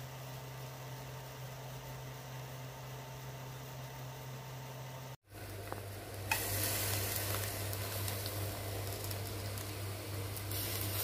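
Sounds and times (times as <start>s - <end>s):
low steady hum: 0.0s - 11.0s
fish sizzling on grill: 5.3s - 11.0s.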